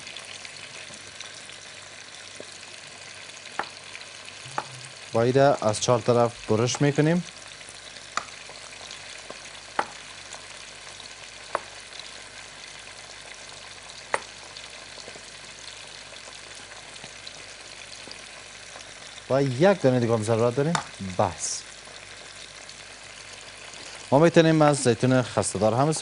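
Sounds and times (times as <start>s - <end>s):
hot oil sizzling: 0.0s - 26.0s
knife tapping wooden cutting board: 3.6s - 3.8s, 4.5s - 4.8s, 9.8s - 10.0s, 11.5s - 11.7s.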